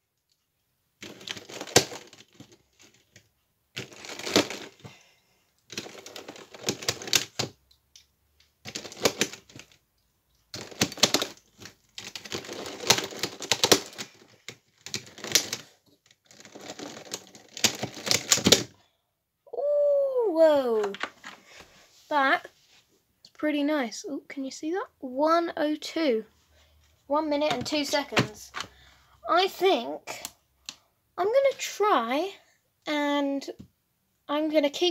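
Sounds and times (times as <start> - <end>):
plastic puzzle pieces clicking: 1.0 - 4.9, 5.6 - 9.8, 10.4 - 18.7.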